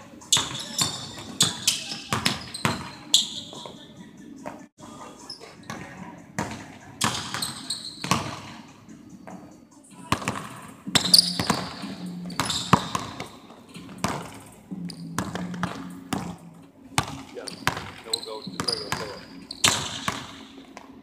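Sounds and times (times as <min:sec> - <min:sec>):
basketball bouncing on wooden floor: 0:00.4 - 0:02.9, 0:10.1 - 0:16.4, 0:17.0 - 0:18.0, 0:18.6 - 0:20.9.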